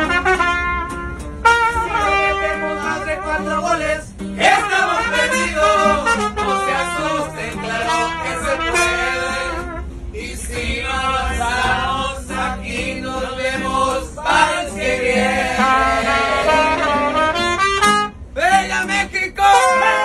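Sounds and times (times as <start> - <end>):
strummed acoustic guitar: 0.0 - 20.0
men singing together: 2.5 - 16.8.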